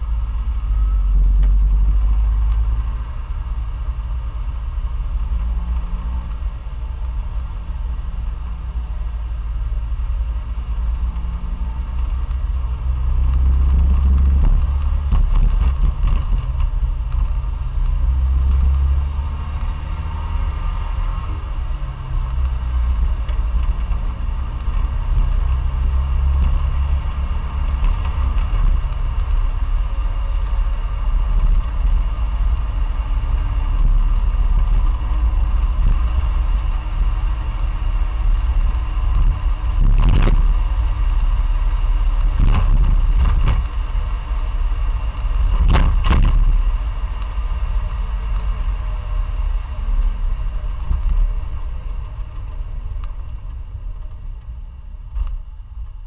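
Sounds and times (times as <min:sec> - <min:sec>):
car engine running: 0:00.0 - 0:56.0
low road rumble: 0:00.0 - 0:56.0.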